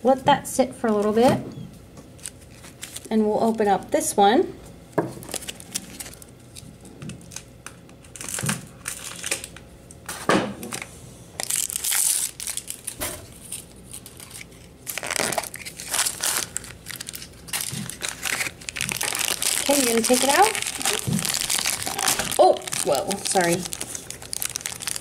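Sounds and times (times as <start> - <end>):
plastic packaging crinkling: 2.1 - 3.7, 5.1 - 9.6, 11.4 - 25.0.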